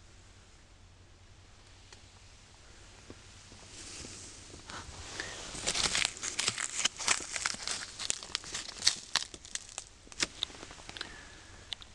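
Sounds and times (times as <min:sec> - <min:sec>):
plastic crinkling and rustling: 0:04.6 - 0:11.1.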